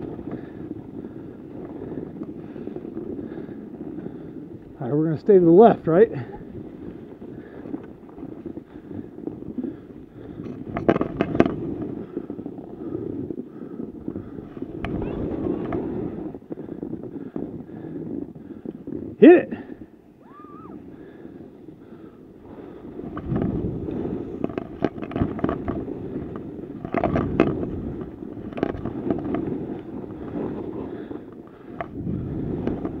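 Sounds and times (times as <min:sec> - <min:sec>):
skis scraping over snow: 0:00.0 - 0:33.0
sharp ski clacks: 0:09.6 - 0:16.6, 0:22.0 - 0:33.0.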